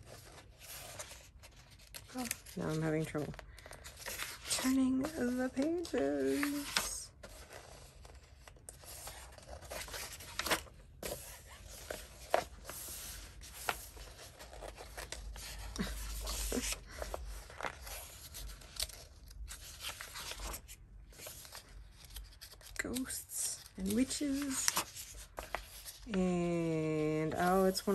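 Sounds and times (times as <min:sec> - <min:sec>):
paper pages rustling: 0:00.0 - 0:27.9.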